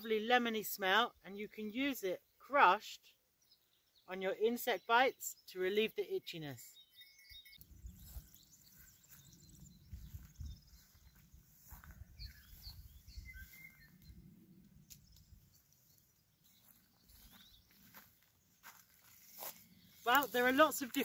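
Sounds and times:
faint bird chirps: 0:06.5 - 0:20.4.

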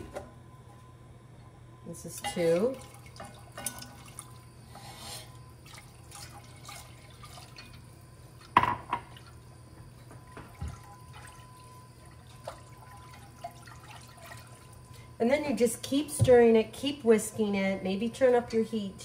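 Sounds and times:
liquid sloshing: 0:02.1 - 0:09.4, 0:10.5 - 0:15.0.

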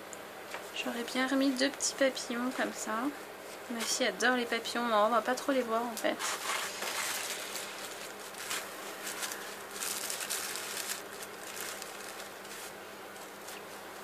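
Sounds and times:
tissue paper rustling and crinkling: 0:06.1 - 0:14.0.

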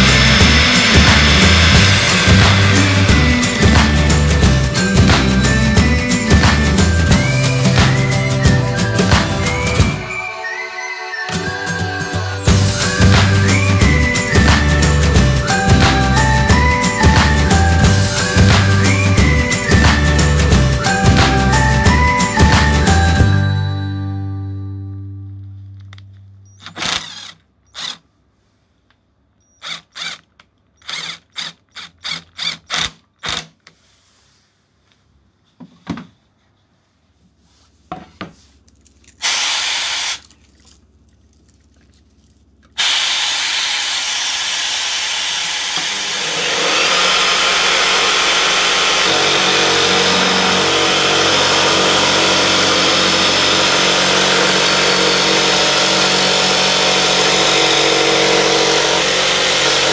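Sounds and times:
jigsaw cutting plywood: 0:00.0 - 0:08.2, 0:26.6 - 0:28.0, 0:29.6 - 0:30.2, 0:30.8 - 0:33.5, 0:39.2 - 0:40.2, 0:42.8 - 0:59.9.

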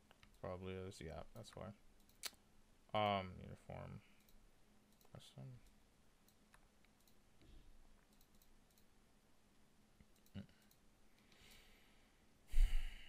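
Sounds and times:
mouse and keyboard clicks: 0:08.0 - 0:08.9.

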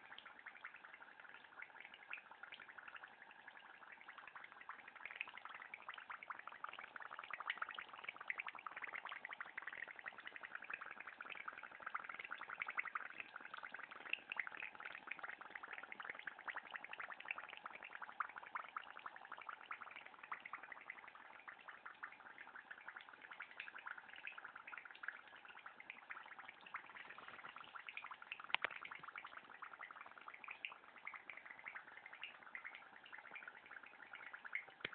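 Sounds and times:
hot oil sizzling and popping: 0:00.0 - 0:34.9.

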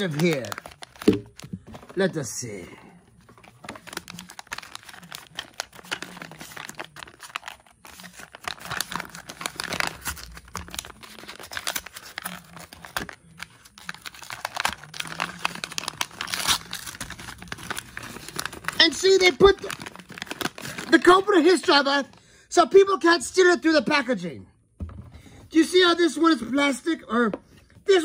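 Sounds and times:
paper wrapper crinkling and tearing: 0:00.0 - 0:02.1, 0:03.2 - 0:21.7.

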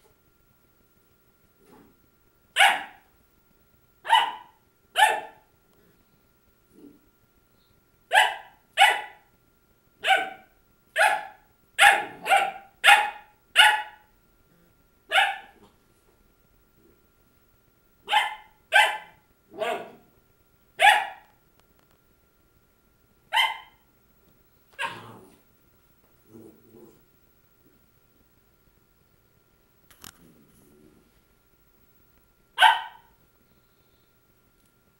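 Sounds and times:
puppy barking: 0:02.6 - 0:03.1, 0:04.0 - 0:05.5, 0:08.1 - 0:09.3, 0:10.0 - 0:14.1, 0:15.1 - 0:15.7, 0:18.1 - 0:20.1, 0:20.8 - 0:21.3, 0:23.3 - 0:23.8, 0:24.8 - 0:25.2, 0:32.6 - 0:33.2.

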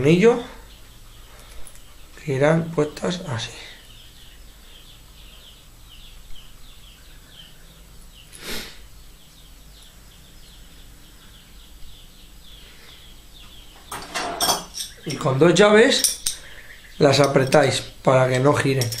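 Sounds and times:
small bird chirping: 0:00.0 - 0:19.0
short breathy burst: 0:08.4 - 0:08.8.

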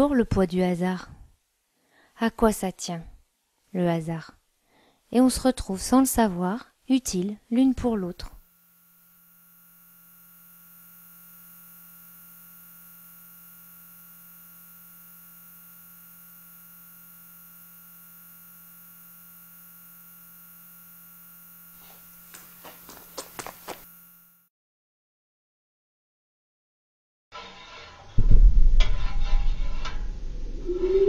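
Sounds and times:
steady electrical hum: 0:00.0 - 0:24.5.

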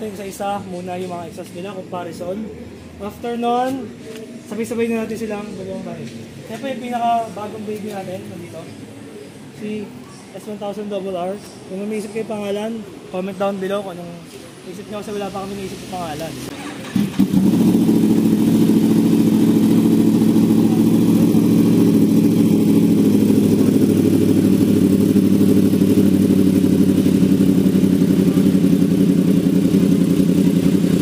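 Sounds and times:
motorcycle engine starting and idling: 0:16.5 - 0:31.0.

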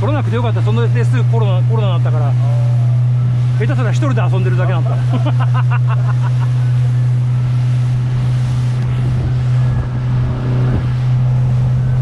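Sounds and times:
boat engine droning: 0:00.0 - 0:12.0
water rushing: 0:00.0 - 0:12.0.

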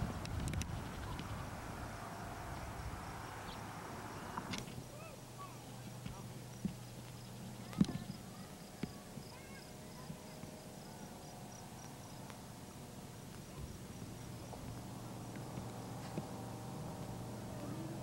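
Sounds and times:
low steady hum: 0:00.0 - 0:18.0
insect chirping: 0:00.7 - 0:12.3.

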